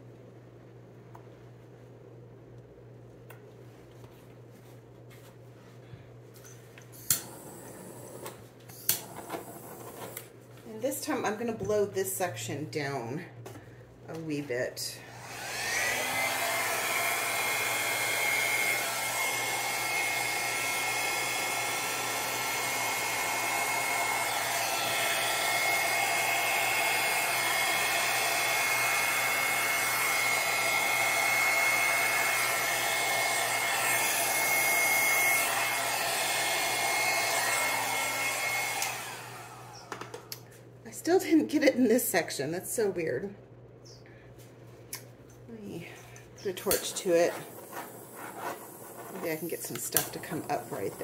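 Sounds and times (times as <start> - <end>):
electric air blower whining: 7.0 - 10.3, 14.1 - 40.5, 45.9 - 51.0.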